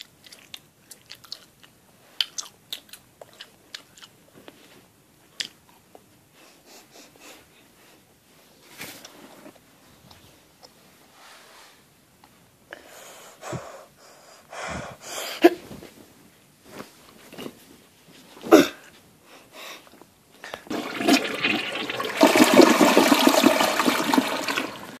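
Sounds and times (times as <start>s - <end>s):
toilet flushing: 20.7s - 25.0s.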